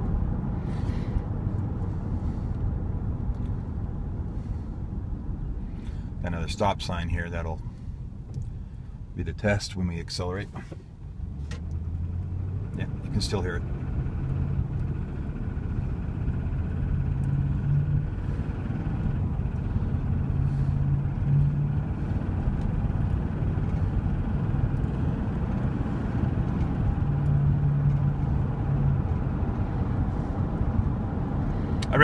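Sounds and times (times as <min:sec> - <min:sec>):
engine ticking: 0:00.0 - 0:32.0
engine accelerating: 0:11.0 - 0:32.0.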